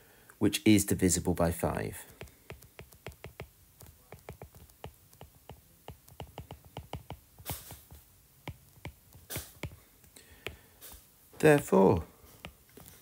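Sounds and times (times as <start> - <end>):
stylus tapping on glass screen: 2.0 - 7.5, 8.4 - 9.8.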